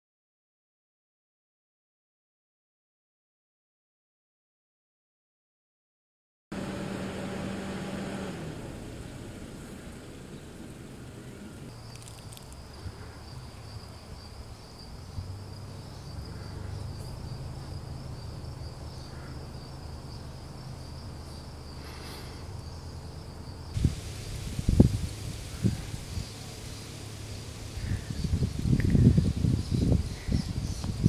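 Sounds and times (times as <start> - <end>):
low outdoor rumble: 6.5 - 31.0.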